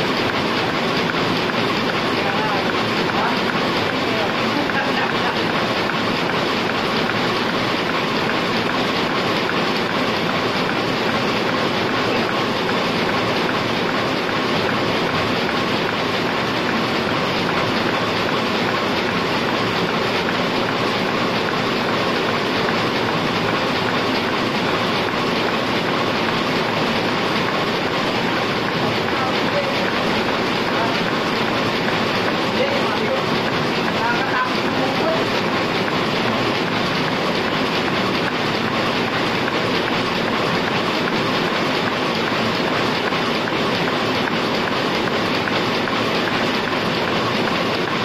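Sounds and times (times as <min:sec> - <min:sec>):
printing press clatter: 0:00.0 - 0:48.0.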